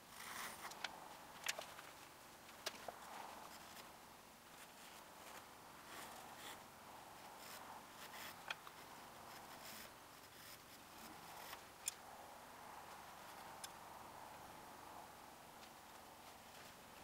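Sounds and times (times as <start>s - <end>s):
pencil scratching on paper: 7.3s - 11.6s.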